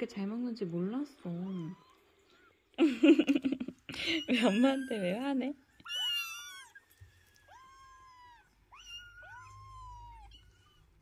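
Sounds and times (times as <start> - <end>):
kittens meowing: 1.2 - 2.7, 4.0 - 11.0.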